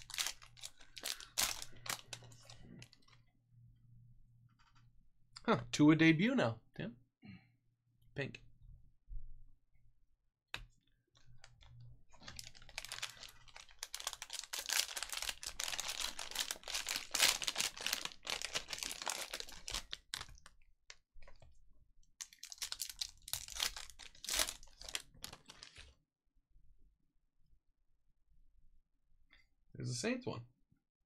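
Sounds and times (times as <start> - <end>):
card wrappers tearing and crinkling: 0.0 - 2.9, 12.2 - 20.4, 22.2 - 25.9.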